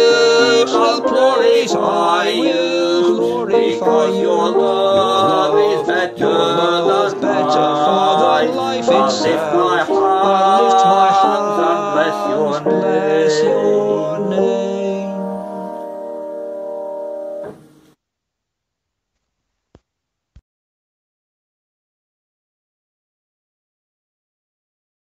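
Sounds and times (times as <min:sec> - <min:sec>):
man singing: 0:00.0 - 0:15.9
piano: 0:00.0 - 0:17.9.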